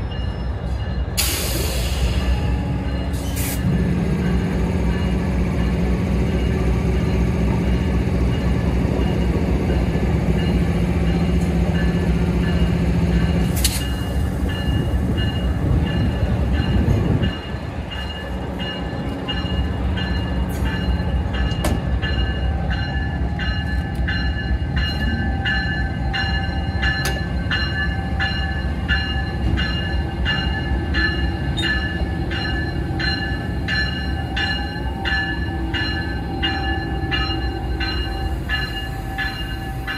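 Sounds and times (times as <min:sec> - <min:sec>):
locomotive bell ringing: 0:00.0 - 0:39.9.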